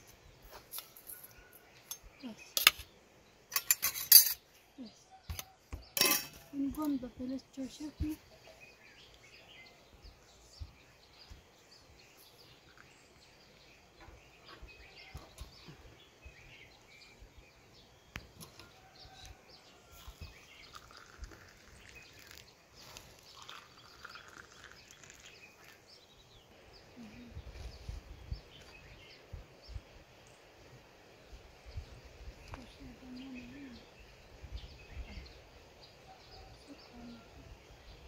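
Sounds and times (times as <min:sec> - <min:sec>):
small bird chirps: 0:00.4 - 0:30.5, 0:31.7 - 0:38.0
tea pouring into glass cup: 0:20.0 - 0:25.9.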